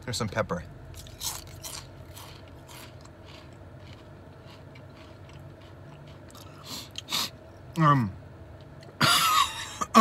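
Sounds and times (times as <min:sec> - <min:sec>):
person chewing crunchy chips: 0:00.9 - 0:07.4.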